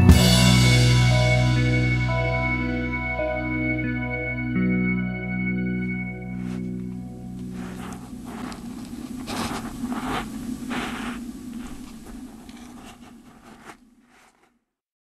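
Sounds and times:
low hum: 0.0s - 14.4s
claws scraping in soil: 6.3s - 14.6s.

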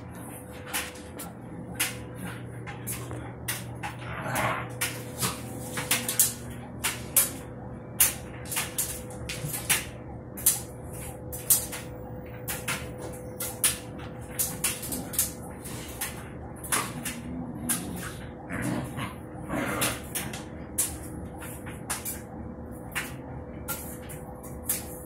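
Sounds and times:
steady low hum: 0.0s - 25.0s
puppy claws clicking on wood floor: 0.6s - 7.4s.

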